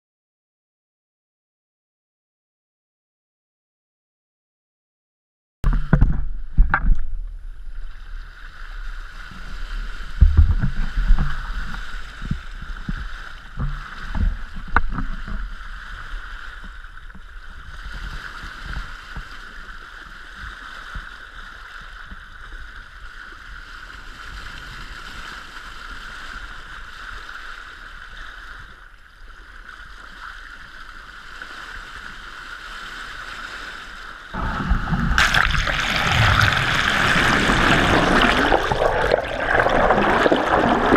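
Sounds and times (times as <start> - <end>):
underwater rushing: 5.7 - 19.7, 34.3 - 40.9
water slapping: 34.4 - 40.9
wind buffeting: 34.4 - 40.9.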